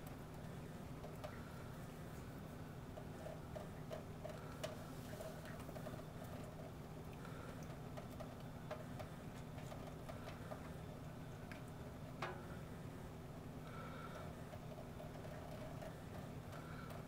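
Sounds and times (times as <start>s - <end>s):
kittens lapping water: 0.0s - 17.0s
low steady hum: 0.0s - 17.0s.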